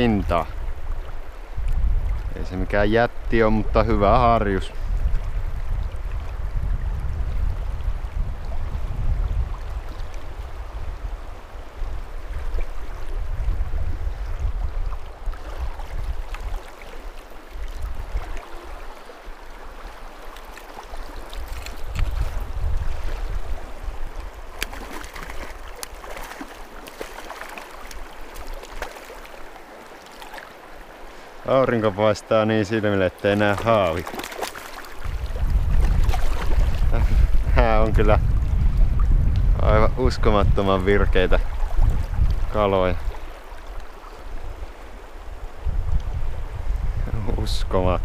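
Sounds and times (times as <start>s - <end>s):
river current rushing: 7.4s - 38.5s, 40.4s - 47.0s.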